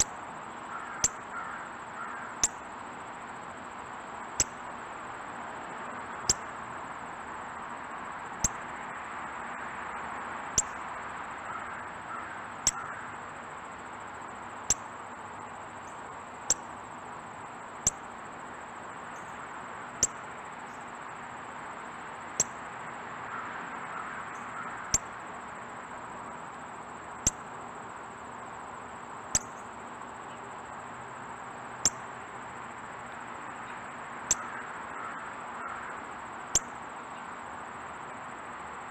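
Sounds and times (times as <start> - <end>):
background hiss: 0.0 - 38.9
bird making sharp clicks: 12.6 - 13.0, 34.3 - 34.5.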